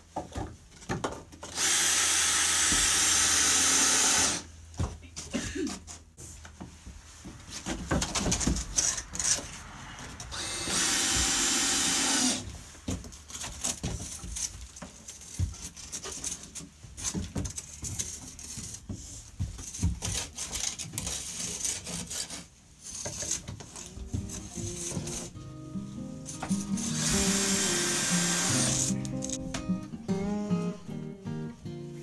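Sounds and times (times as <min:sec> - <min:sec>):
cordless drill driving screw: 0:01.6 - 0:04.5, 0:10.3 - 0:12.4, 0:26.3 - 0:29.4.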